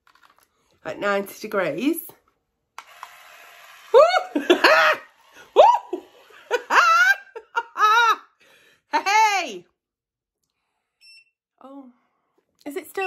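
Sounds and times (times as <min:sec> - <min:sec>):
woman laughing: 0:04.0 - 0:08.4.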